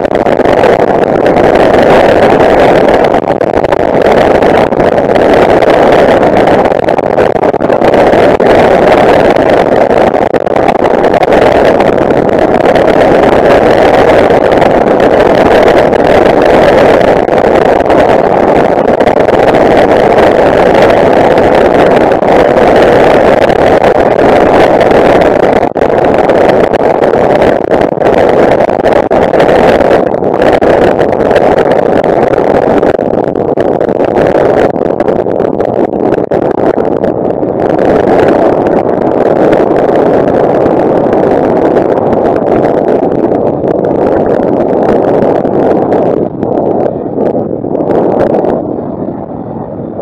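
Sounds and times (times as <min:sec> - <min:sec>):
rushing airflow: 0:00.0 - 0:50.0.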